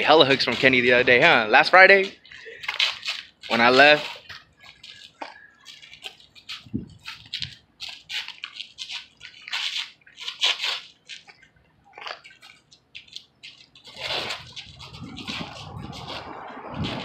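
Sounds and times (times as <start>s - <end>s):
sneakers scuffing on asphalt: 13.0s - 17.0s.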